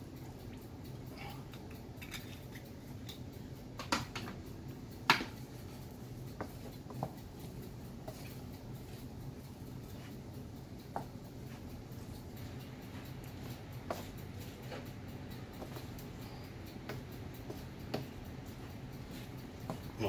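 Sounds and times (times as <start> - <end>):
wooden spoon stirring in pan: 5.1 - 20.0.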